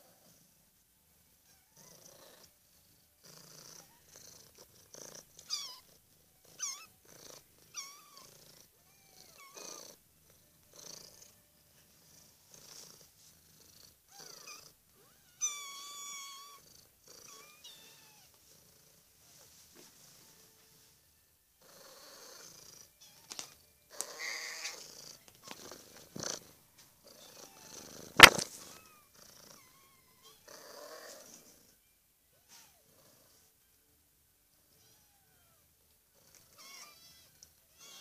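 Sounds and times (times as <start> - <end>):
cat purring: 1.6 - 15.3, 16.2 - 31.8
kittens mewing: 28.2 - 28.9.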